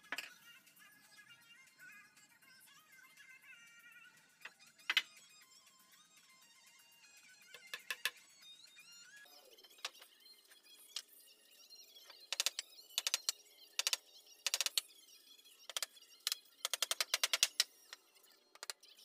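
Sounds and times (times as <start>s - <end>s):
hammer tapping wooden boards: 12.3s - 14.8s, 16.7s - 17.6s.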